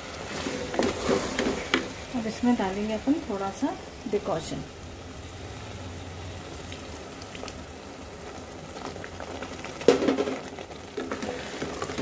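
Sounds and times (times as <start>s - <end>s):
thick curry bubbling: 0.0s - 12.0s
wooden spoon stirring: 0.2s - 2.0s, 10.9s - 12.0s.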